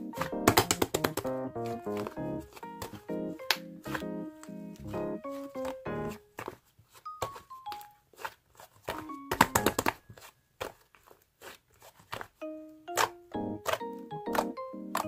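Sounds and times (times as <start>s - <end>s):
light background music: 0.0s - 8.2s, 8.9s - 9.9s, 12.4s - 15.0s
slime clicking and popping: 0.2s - 2.2s, 12.9s - 15.0s.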